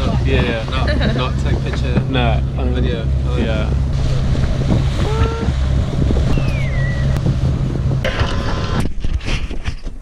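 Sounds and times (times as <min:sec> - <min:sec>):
boat engine droning: 0:00.0 - 0:08.9
wind buffeting microphone: 0:00.0 - 0:10.0.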